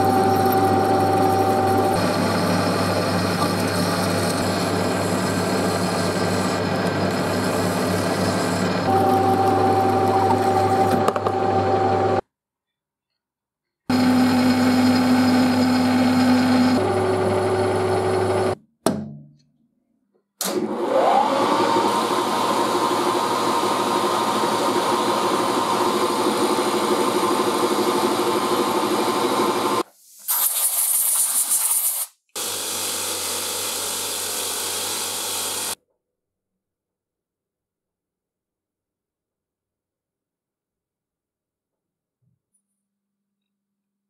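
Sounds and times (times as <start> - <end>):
bench grinder buffing wheel hum: 0.0 - 12.2, 13.9 - 18.6, 21.2 - 29.8, 32.4 - 35.8
end mill cutting brass: 0.0 - 12.2, 21.9 - 29.8, 32.4 - 35.8
metal lathe humming: 0.0 - 12.2, 13.9 - 18.6, 21.4 - 29.8, 32.4 - 35.8
milling machine spindle whine: 0.0 - 12.2, 13.9 - 18.6, 21.2 - 29.8, 32.4 - 35.8
short hissing burst: 29.9 - 32.2.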